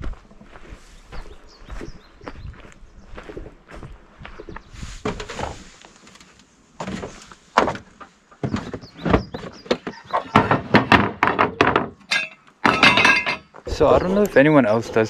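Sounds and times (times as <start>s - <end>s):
camping gear clunking and clattering: 5.0s - 14.2s.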